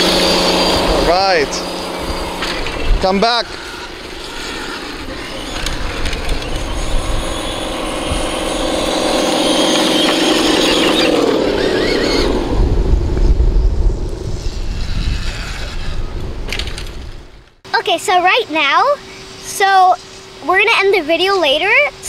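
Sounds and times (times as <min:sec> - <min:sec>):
toy truck motor hum: 0:00.0 - 0:12.6
low rumbling: 0:00.0 - 0:17.7.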